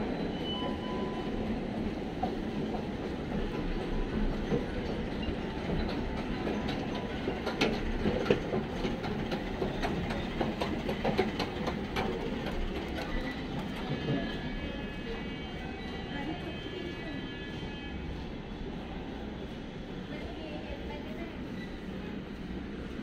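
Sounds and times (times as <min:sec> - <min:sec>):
escalator steps clicking: 0:02.2 - 0:13.8.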